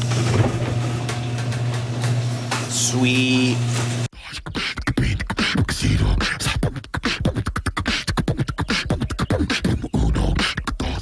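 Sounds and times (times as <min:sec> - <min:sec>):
beatboxing clicks and bass thumps: 0:04.2 - 0:11.0.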